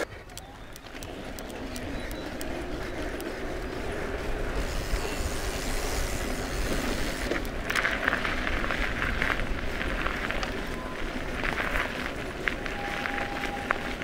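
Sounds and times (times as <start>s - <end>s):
bike tyres rolling on tarmac: 0.0s - 14.0s
tyres crunching on gravel: 0.0s - 14.0s
wind rushing over microphone: 0.0s - 14.0s.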